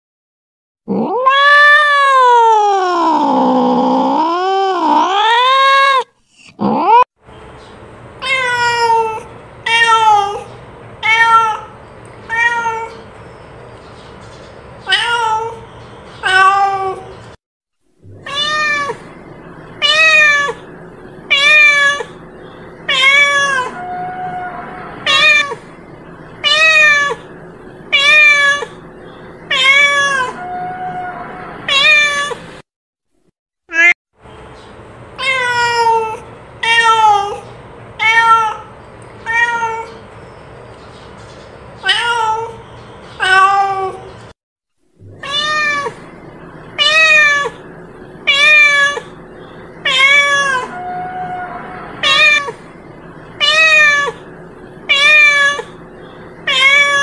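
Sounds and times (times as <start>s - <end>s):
cat meowing: 0.9s - 7.0s, 8.2s - 13.0s, 14.8s - 15.6s, 16.2s - 17.1s, 18.1s - 19.1s, 19.8s - 20.6s, 21.3s - 22.2s, 22.9s - 25.6s, 26.4s - 27.3s, 27.9s - 28.8s, 29.5s - 32.4s, 33.7s - 34.0s, 35.2s - 37.4s, 38.0s - 40.0s, 41.8s - 42.6s, 43.2s - 44.1s, 45.1s - 46.1s, 46.8s - 49.2s, 49.8s - 52.7s, 53.4s - 55.8s, 56.4s - 57.0s.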